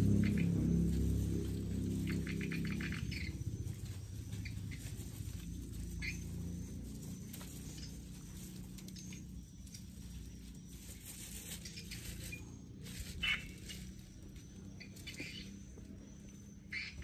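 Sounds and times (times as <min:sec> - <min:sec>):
rustles and scuffs in soil: 0:03.5 - 0:14.5.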